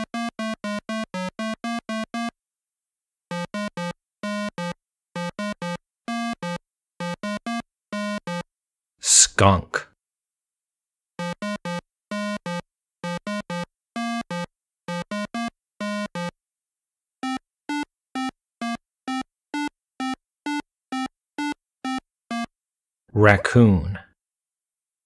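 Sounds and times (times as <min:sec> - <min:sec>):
simple synthesizer tune: 0:11.2 - 0:16.4.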